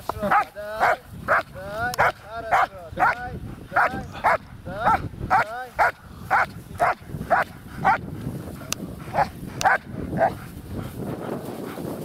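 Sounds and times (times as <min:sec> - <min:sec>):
dog barking: 0:00.3 - 0:03.2, 0:03.8 - 0:08.0, 0:09.1 - 0:10.4.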